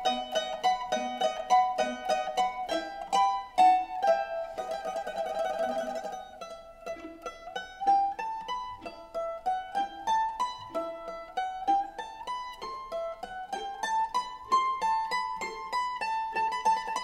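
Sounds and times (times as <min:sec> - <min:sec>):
plucked string melody: 0:00.0 - 0:17.0.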